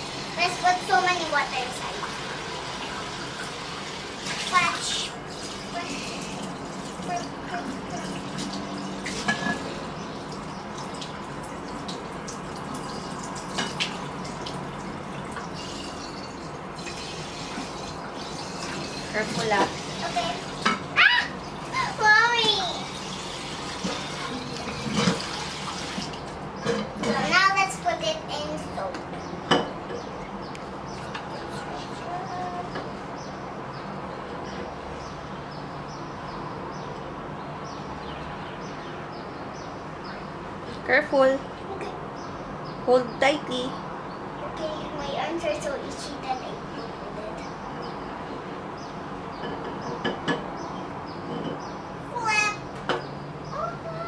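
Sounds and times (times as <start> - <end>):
plates clinking: 9.0 - 9.8, 26.6 - 27.4.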